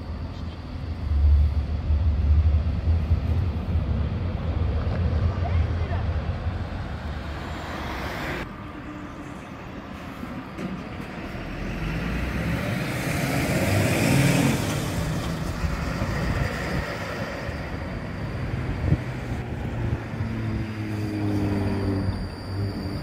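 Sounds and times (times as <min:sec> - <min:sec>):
tram rolling in: 0:00.0 - 0:23.0
truck driving past: 0:10.0 - 0:23.0.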